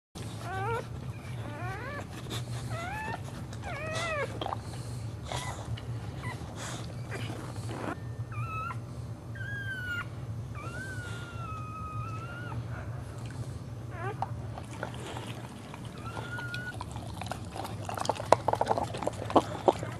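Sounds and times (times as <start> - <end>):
dog whining: 0.2 - 19.9.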